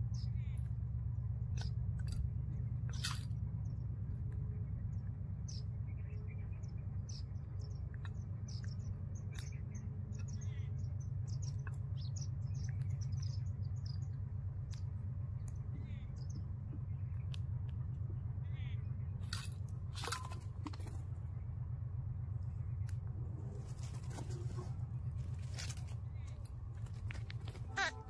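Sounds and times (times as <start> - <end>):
birds chirping and squeaking: 0.0 - 17.4, 18.2 - 28.0
low rumble: 0.0 - 28.0
rustles: 22.4 - 28.0.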